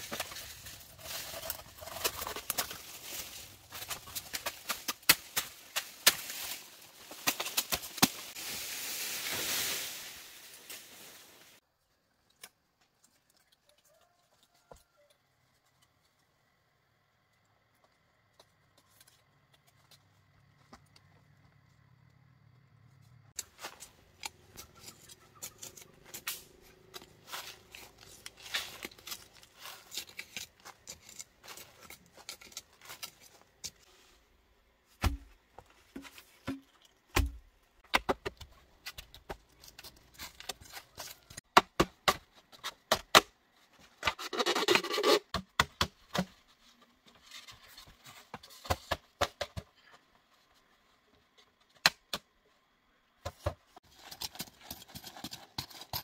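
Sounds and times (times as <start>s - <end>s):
rough scraping rustle: 0.0s - 11.6s, 23.4s - 34.3s
dull thumps of bamboo post: 35.0s - 38.4s.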